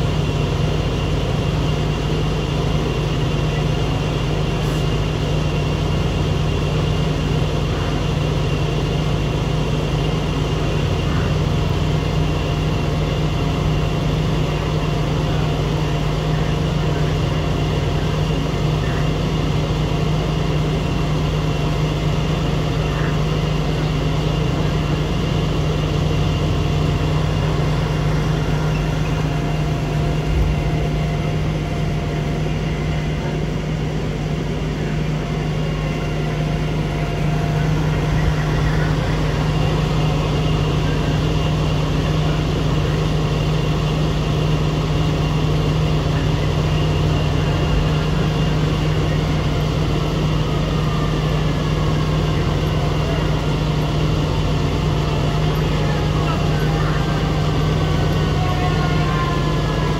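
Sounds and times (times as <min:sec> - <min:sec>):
fire engine low drone: 0:00.0 - 0:59.9.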